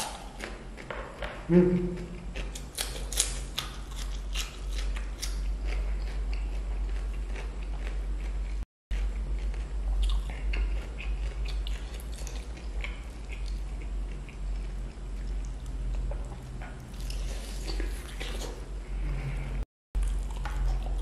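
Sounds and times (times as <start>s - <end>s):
low hum: 0.0s - 3.5s
chewing chicken: 1.8s - 18.6s, 20.0s - 21.0s.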